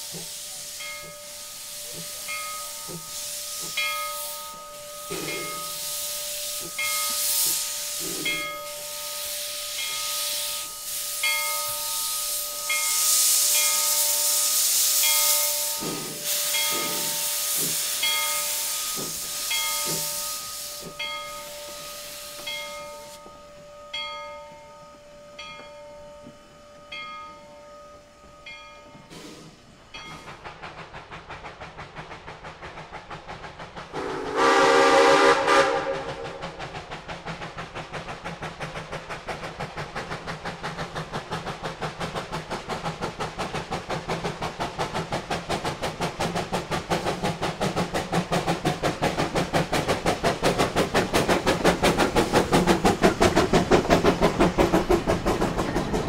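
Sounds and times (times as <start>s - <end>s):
locomotive exhaust beats: 0.0s - 56.0s
steam hissing: 0.0s - 56.0s
steam locomotive exhaust chuffs: 0.0s - 56.0s
steam whistle blast: 33.9s - 36.6s.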